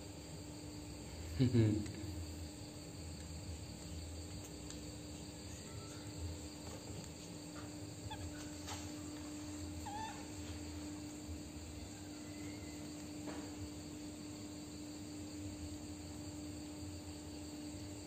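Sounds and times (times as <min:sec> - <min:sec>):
steady low hum: 0:00.0 - 0:18.0
baby monkey squeaking: 0:08.1 - 0:08.5, 0:09.8 - 0:10.2
tiny chirps: 0:09.7 - 0:10.4.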